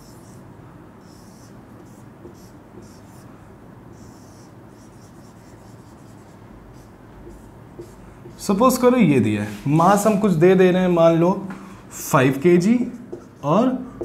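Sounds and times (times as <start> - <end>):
marker pen on whiteboard: 0.0 - 11.4, 12.3 - 14.0.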